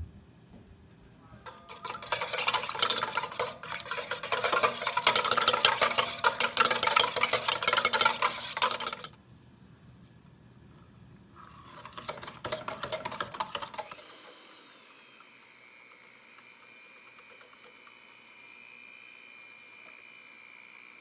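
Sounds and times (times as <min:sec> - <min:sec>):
whisk clattering in metal bowl: 0:01.4 - 0:09.2, 0:11.4 - 0:14.1.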